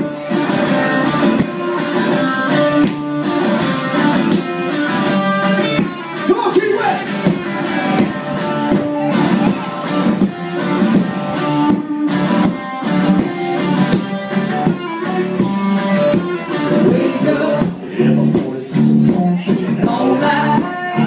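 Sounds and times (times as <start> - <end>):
country band playing: 0.0 - 21.0
electric guitar: 0.0 - 21.0.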